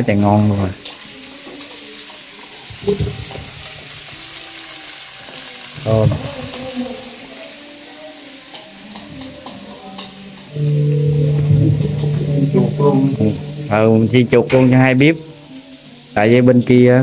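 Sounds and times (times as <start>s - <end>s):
food sizzling in hot oil: 0.3s - 16.4s
person's voice: 10.6s - 15.4s.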